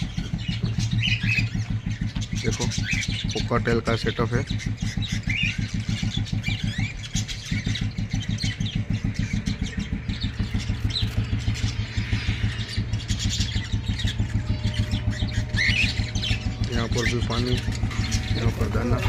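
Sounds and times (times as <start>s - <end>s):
deep steady hum: 0.0s - 19.0s
small engine throbbing: 0.0s - 19.0s.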